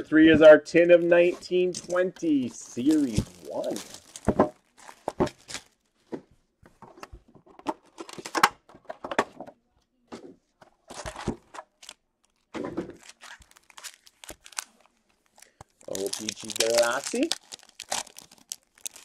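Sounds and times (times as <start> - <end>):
plastic wrap crinkling: 1.3 - 6.0, 11.7 - 19.0.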